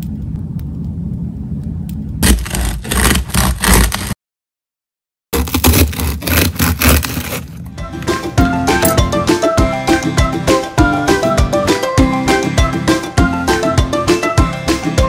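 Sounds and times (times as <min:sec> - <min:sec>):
low steady rumble: 0:00.0 - 0:04.0
bread knife sawing through crust: 0:02.2 - 0:04.2, 0:05.4 - 0:07.6
music: 0:07.7 - 0:15.0.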